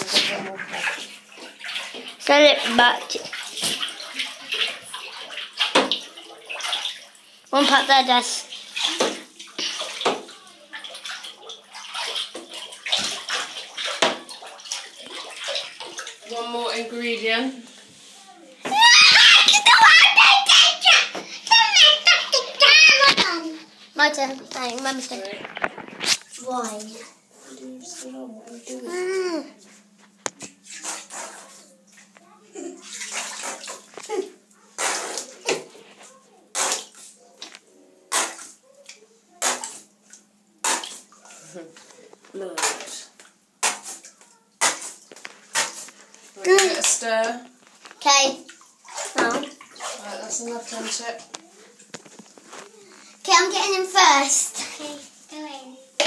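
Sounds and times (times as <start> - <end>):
thick liquid sloshing and splashing: 0.0 - 17.9, 30.4 - 37.5, 38.1 - 56.0.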